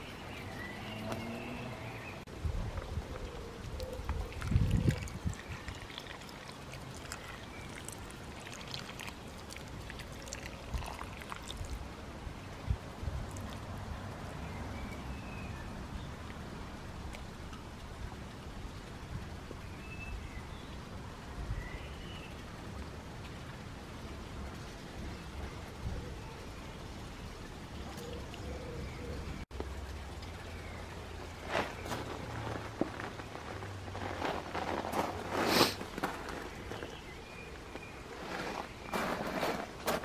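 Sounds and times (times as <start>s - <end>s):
water pouring from watering can: 4.3s - 11.9s.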